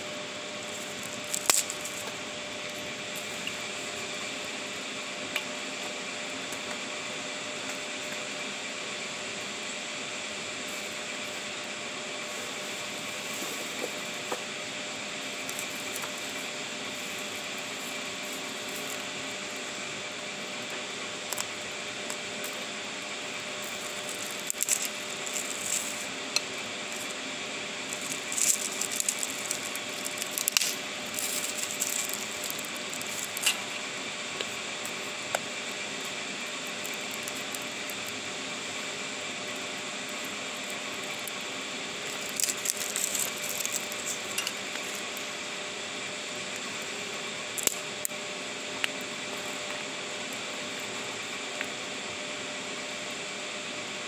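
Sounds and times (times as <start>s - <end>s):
campfire crackling and popping: 0.6s - 4.5s, 13.8s - 45.6s, 46.4s - 51.9s.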